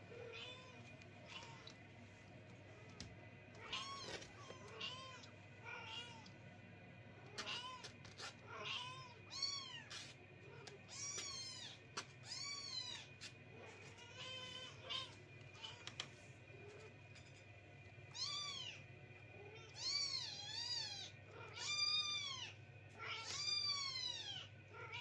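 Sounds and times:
kittens meowing: 3.6 - 6.3.

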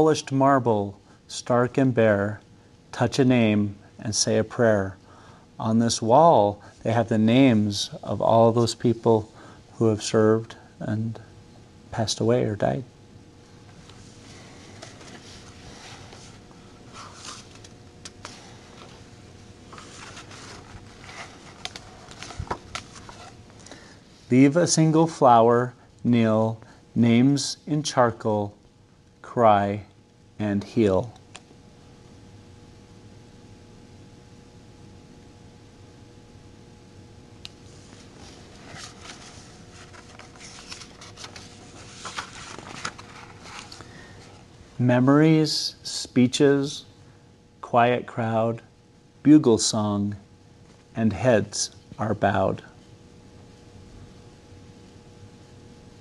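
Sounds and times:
faint steady hum: 0.0 - 56.0
paper rustling: 14.3 - 23.8, 37.8 - 44.4.

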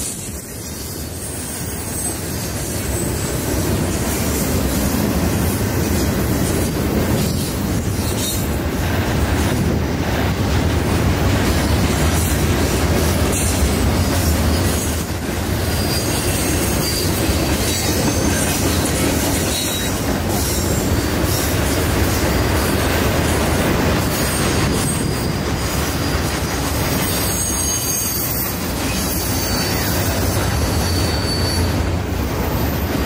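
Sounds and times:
high wheel squeals: 0.0 - 4.8, 13.3 - 22.8, 24.1 - 33.0
freight train rumbling past: 0.0 - 33.0.

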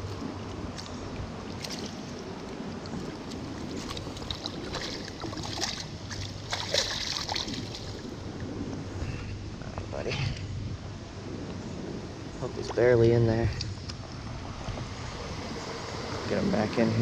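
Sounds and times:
stream water sloshing around waders: 0.0 - 8.5
wind buffeting microphone: 0.0 - 17.0
small water splashes: 0.8 - 8.2.

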